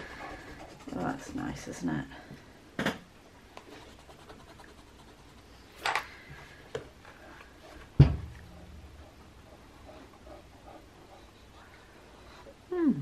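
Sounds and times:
dry media scratching on paper: 0.0s - 1.8s, 3.7s - 5.7s
sharp thump: 8.0s - 8.4s.

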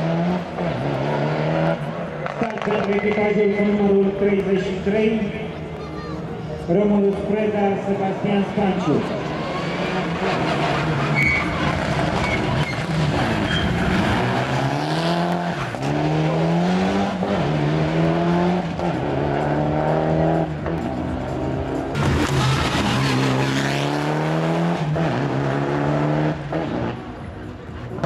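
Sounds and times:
rally car engine revving past: 9.2s - 27.0s.

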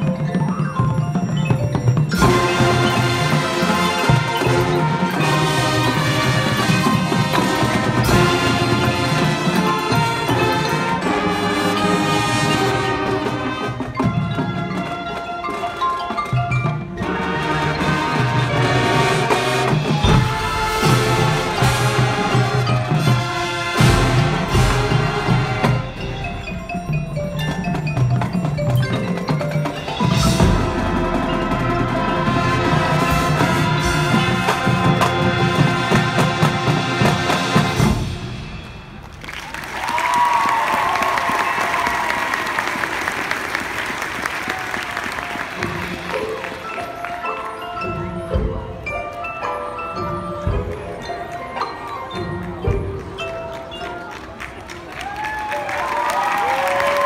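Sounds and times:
mallet percussion: 0.0s - 43.9s, 44.5s - 57.0s
marching band playing: 0.0s - 57.0s
brass chords: 2.1s - 39.2s.

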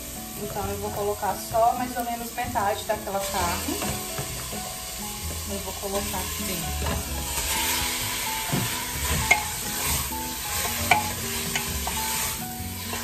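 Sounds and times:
meat sizzling in hot oil: 0.0s - 13.0s
spatula stirring and tapping: 3.1s - 13.0s.

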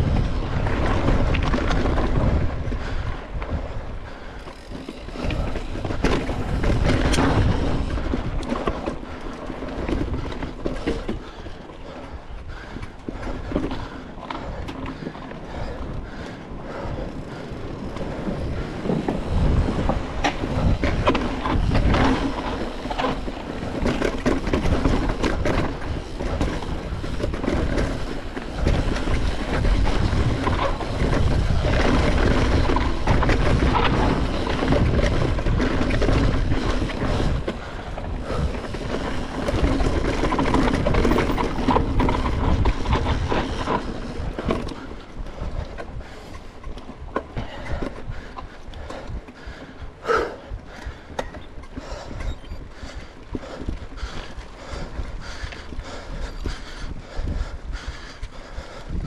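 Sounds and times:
tyre noise on dirt: 0.0s - 12.2s, 17.6s - 48.4s
bike rattling over bumps: 0.0s - 59.0s
wind on microphone: 0.0s - 59.0s.

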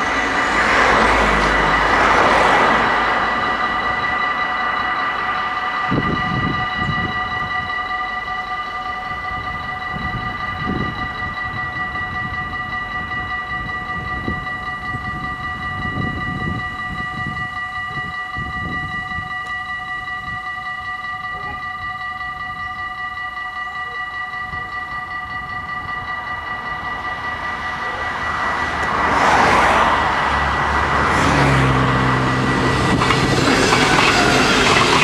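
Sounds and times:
level crossing warning bells: 0.0s - 35.0s
low rumbles: 24.4s - 35.0s.

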